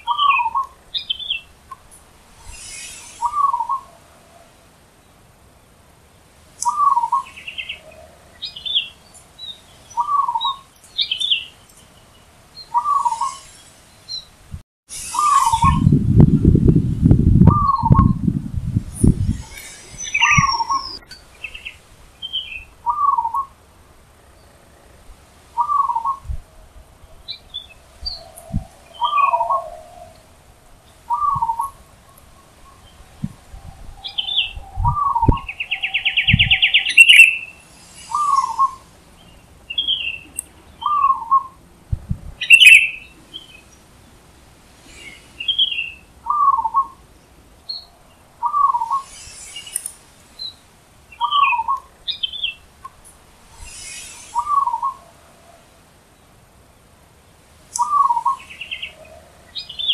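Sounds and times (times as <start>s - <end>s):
small birds chirping: 0.0s - 16.6s, 17.4s - 41.6s, 42.4s - 59.9s
buzzy bird trill: 6.6s - 14.3s, 14.9s - 16.1s, 19.0s - 23.5s, 33.6s - 41.5s
dove cooing: 25.6s - 26.3s, 28.0s - 30.4s, 31.1s - 32.6s.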